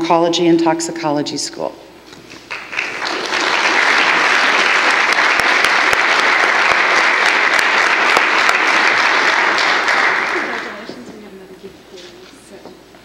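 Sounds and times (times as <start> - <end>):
audience applauding: 2.4 - 11.1.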